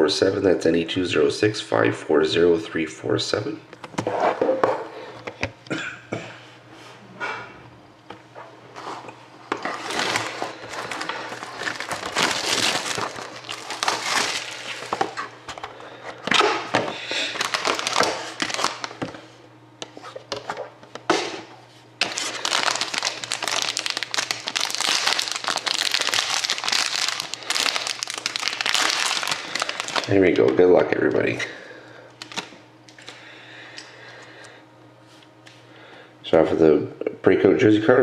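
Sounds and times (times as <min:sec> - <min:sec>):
plastic wrapping crinkling: 0:09.5 - 0:15.3, 0:16.4 - 0:19.2, 0:22.0 - 0:30.4.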